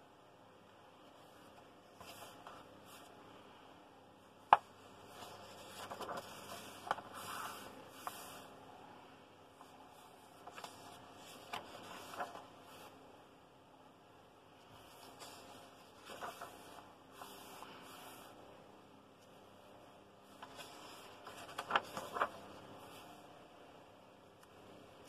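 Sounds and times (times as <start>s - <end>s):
paper pages rustling: 1.3s - 3.2s, 4.5s - 8.5s, 9.6s - 13.0s, 14.6s - 18.4s, 20.2s - 23.3s.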